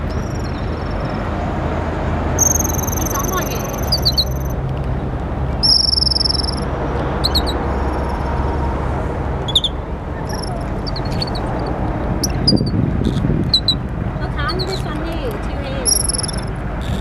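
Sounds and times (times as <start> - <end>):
animal whistle: 2.4 - 4.5, 5.6 - 8.3, 9.5 - 11.4, 15.8 - 16.5
high-pitched animal chirps: 2.4 - 4.6, 5.6 - 8.3, 9.5 - 13.8, 15.8 - 17.0.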